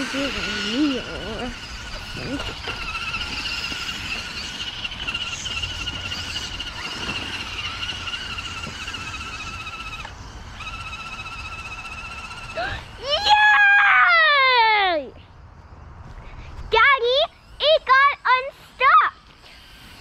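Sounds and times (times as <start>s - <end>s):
electric motor whining: 0.0s - 13.4s, 18.6s - 20.0s.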